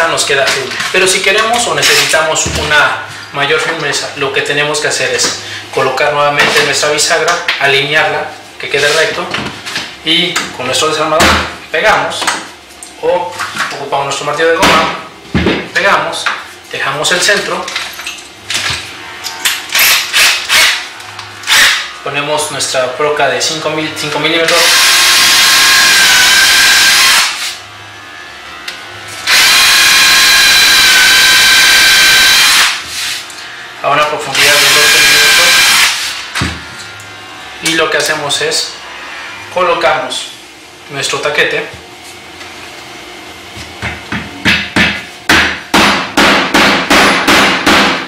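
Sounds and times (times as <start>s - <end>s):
cordless drill whining: 24.5s - 27.4s, 29.3s - 32.8s.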